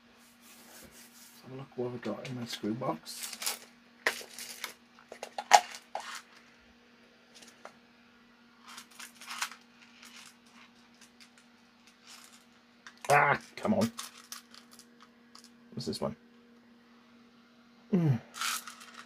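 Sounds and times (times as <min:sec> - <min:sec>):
faint steady hum: 0:00.0 - 0:19.0
screws rattling in plastic box: 0:08.6 - 0:12.5, 0:13.8 - 0:15.5, 0:18.4 - 0:19.0.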